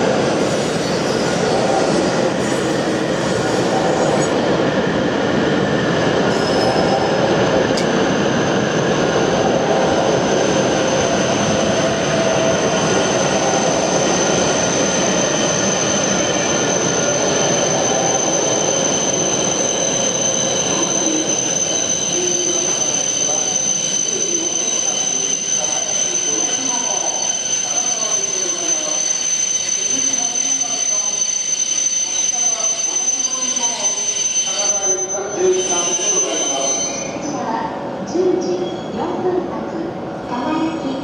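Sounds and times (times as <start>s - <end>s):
train wheels rumbling on rail: 0.0s - 31.3s
high train whine: 0.0s - 41.0s.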